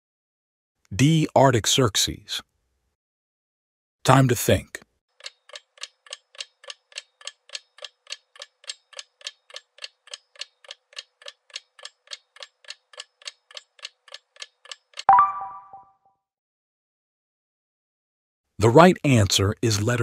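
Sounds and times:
clock-like ticking: 0:05.2 - 0:15.1.

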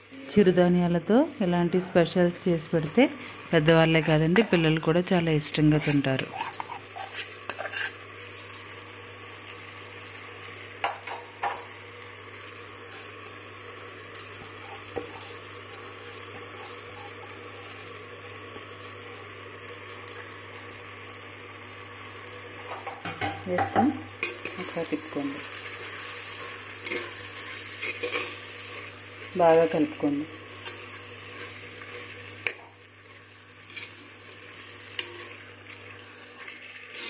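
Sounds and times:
vegetables sizzling in oil: 0:00.0 - 0:37.0
spatula scraping and clatter: 0:05.7 - 0:08.0, 0:25.8 - 0:28.8.

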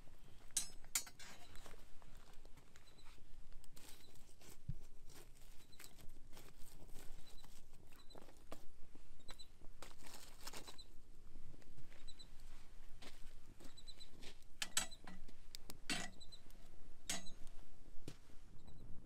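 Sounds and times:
footsteps on dirt: 0:01.4 - 0:08.9, 0:11.5 - 0:14.5
faint bird chirps: 0:02.8 - 0:03.2, 0:07.2 - 0:08.2
campfire crackling and popping: 0:14.4 - 0:15.9.

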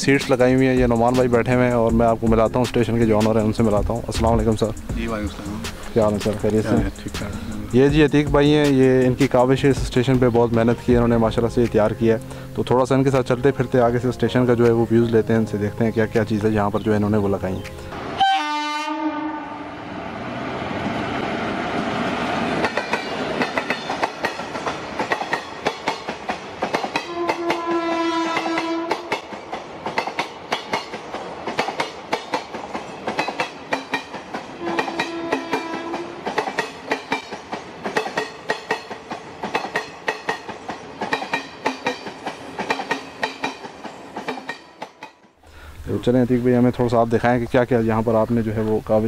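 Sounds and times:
train horn blasts: 0:18.2 - 0:19.8, 0:27.0 - 0:29.2, 0:34.6 - 0:36.3
train wheels clattering: 0:22.4 - 0:45.4.

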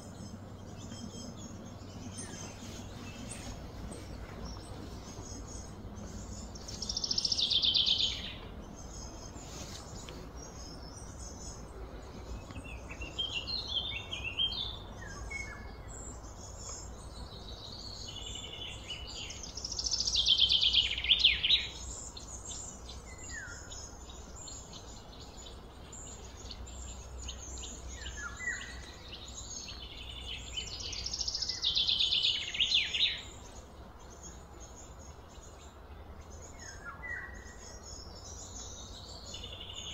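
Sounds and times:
low background rumble: 0:00.0 - 0:31.7
bird singing: 0:00.0 - 0:39.9.

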